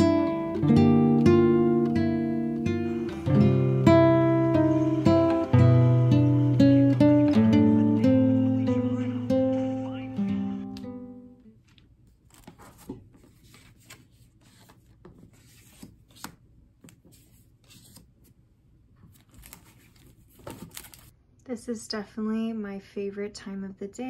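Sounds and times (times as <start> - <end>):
acoustic guitar music: 0.0 - 11.4
paper rustles: 11.6 - 18.3, 19.0 - 21.1.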